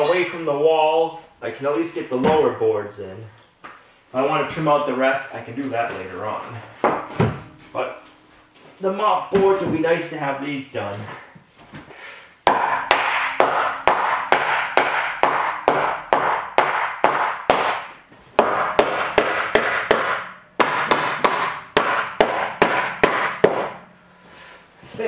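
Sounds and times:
tin wall ringing: 0.0 - 0.8, 6.1 - 10.8.

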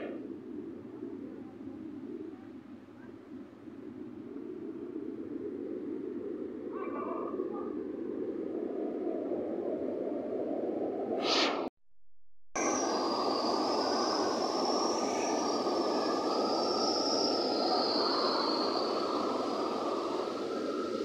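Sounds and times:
steady high hiss: 12.6 - 21.0.

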